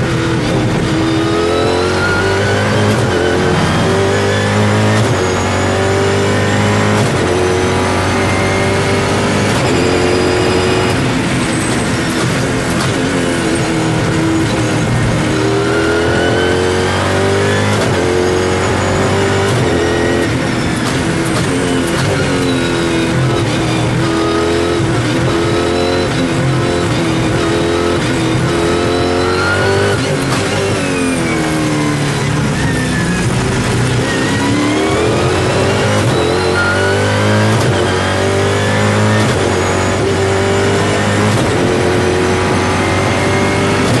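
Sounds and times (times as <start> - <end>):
race car engine revving: 0.0 - 44.0.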